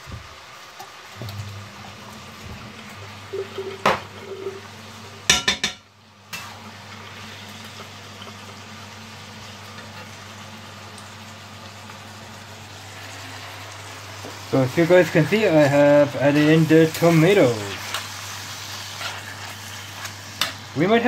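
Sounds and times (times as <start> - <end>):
low steady hum: 1.1 - 14.2
metal spatula scraping a pan: 16.3 - 20.4.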